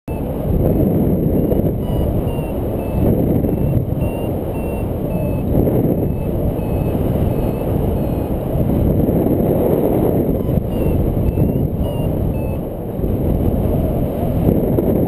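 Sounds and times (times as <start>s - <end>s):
variometer beeping: 0.1s - 0.4s, 1.4s - 12.8s
wind rushing over microphone: 0.1s - 15.0s.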